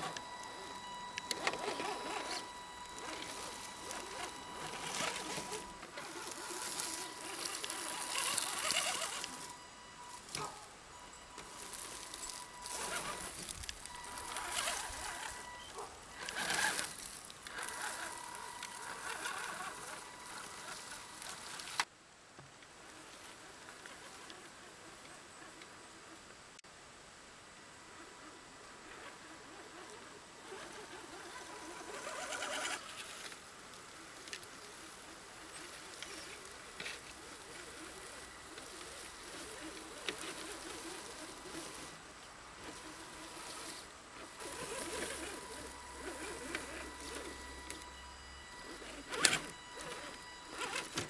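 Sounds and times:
electric motor whining: 0.0s - 21.9s, 28.8s - 51.0s
rustling and crunching through brush: 0.0s - 21.9s, 28.2s - 51.0s.

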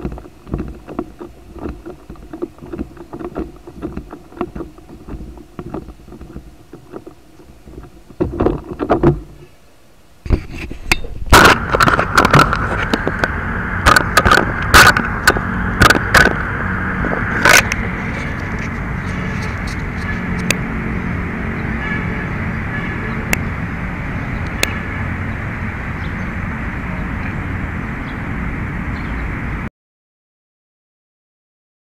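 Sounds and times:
sharp knocks and clatters: 0.0s - 9.4s, 10.3s - 20.6s
steady rushing noise: 0.0s - 29.7s.

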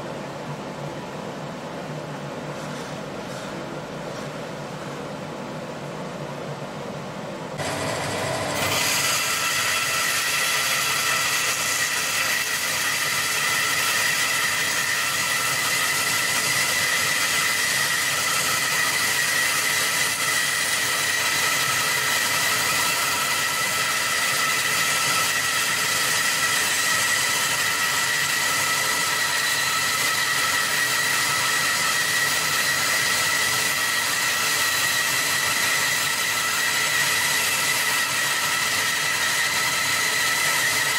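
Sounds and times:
bandsaw cutting wood: 7.6s - 40.9s.

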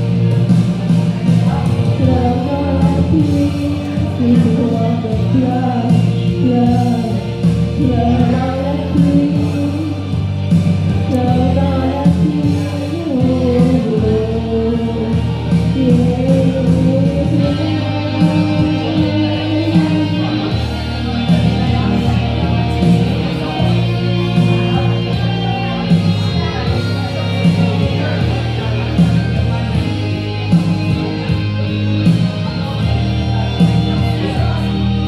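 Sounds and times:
backing track with guitar: 0.0s - 35.0s
woman singing into microphone: 1.4s - 29.1s.

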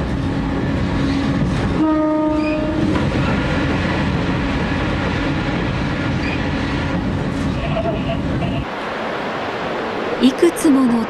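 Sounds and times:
diesel railcar engine drone: 0.0s - 11.0s
rail noise: 0.0s - 11.0s
train horn: 1.7s - 3.0s.

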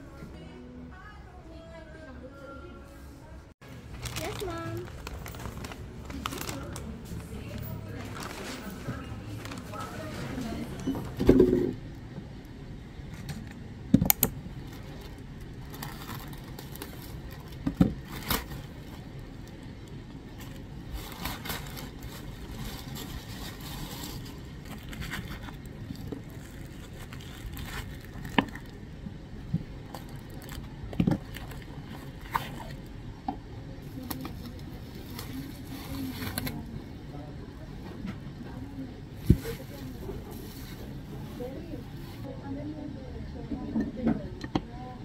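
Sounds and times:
packaging rustling and crinkling: 3.7s - 10.8s, 14.6s - 28.9s, 29.8s - 32.8s.

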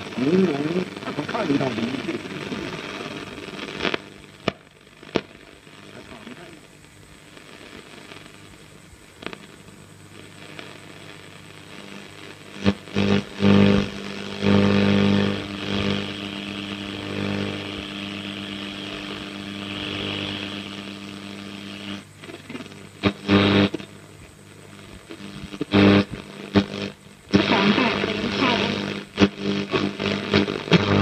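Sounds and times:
bursts of broadcast sound: 0.0s - 31.0s
radio hum: 0.0s - 31.0s
radio static hiss: 0.0s - 31.0s.

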